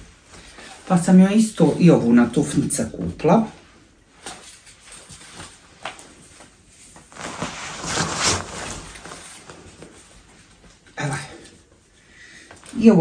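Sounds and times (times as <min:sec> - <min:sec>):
fabric and shopping bag rustling: 0:03.4 - 0:10.9.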